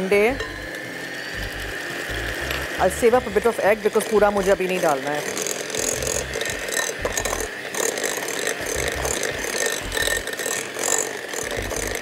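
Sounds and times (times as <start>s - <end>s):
electric hand mixer whirring: 0.0s - 12.0s
beaters rattling in glass bowl: 3.4s - 12.0s.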